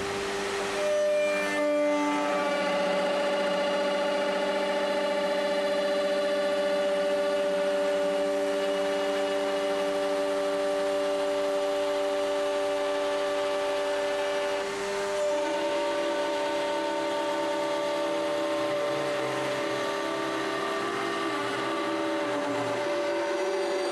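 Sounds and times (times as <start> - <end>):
router motor whine: 0.0 - 23.9.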